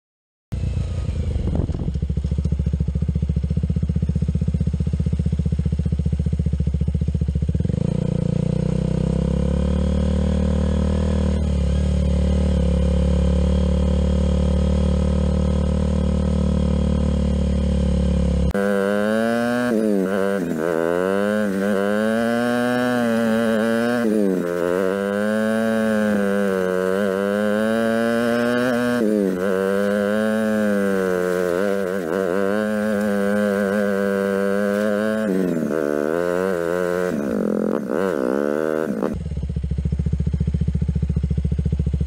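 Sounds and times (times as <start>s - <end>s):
motorcycle engine running: 0.5s - 42.0s.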